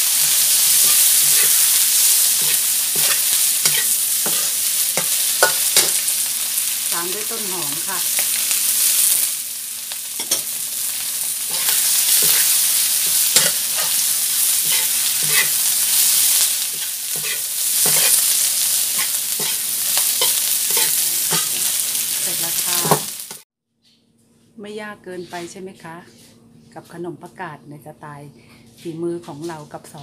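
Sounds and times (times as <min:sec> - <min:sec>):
food sizzling in a wok: 0:00.0 - 0:23.4
spatula scraping and clanking on pan: 0:00.2 - 0:06.2, 0:10.2 - 0:10.5, 0:11.4 - 0:21.8.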